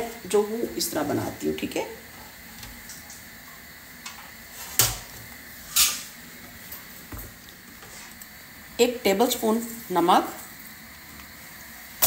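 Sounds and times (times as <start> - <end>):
kitchen handling noises: 4.1 - 6.1.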